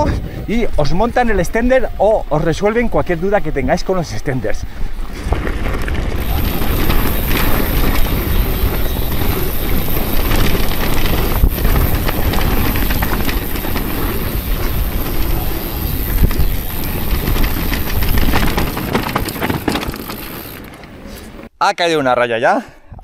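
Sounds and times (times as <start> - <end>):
bike rattles and clicks: 4.7 - 21.5
wind rumble on microphone: 4.8 - 20.5
tyres rolling over dirt and stones: 4.9 - 21.5.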